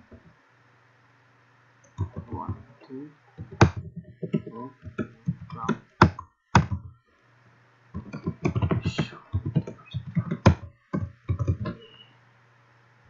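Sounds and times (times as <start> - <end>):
faint low hum: 0.0 - 13.0
man muttering: 5.5 - 5.8, 8.5 - 10.4.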